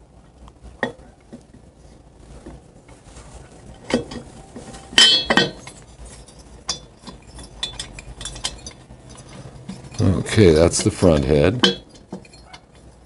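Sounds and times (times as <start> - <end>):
metal clinks and taps: 5.0 - 13.0.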